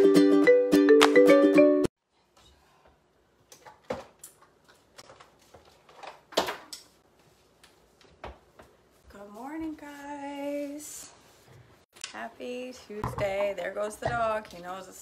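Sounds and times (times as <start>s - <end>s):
woman singing a greeting: 9.2s - 11.0s.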